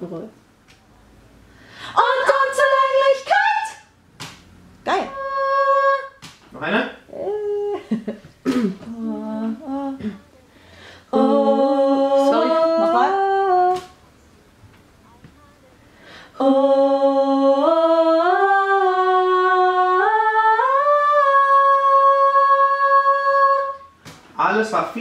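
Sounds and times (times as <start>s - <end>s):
woman humming a melody: 7.1s - 10.2s, 11.1s - 13.9s.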